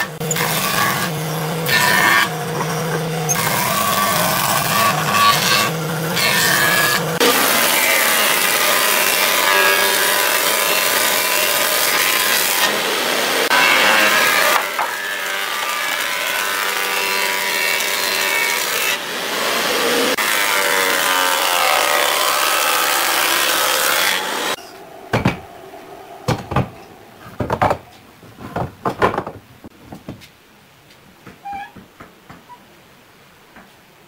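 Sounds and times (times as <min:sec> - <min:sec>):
electric planer cutting wood: 0:00.0 - 0:24.6
wooden boards knocking: 0:25.1 - 0:25.4, 0:26.3 - 0:30.3.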